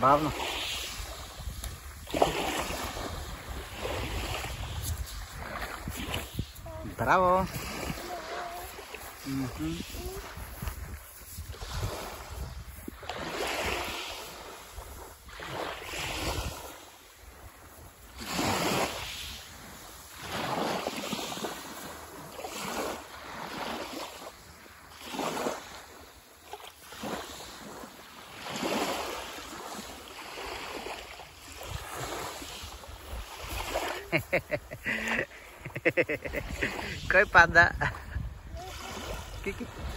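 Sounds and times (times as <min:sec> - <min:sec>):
wind on microphone: 0:00.0 - 0:20.6, 0:31.4 - 0:39.9
waves washing on shingle: 0:00.0 - 0:39.9.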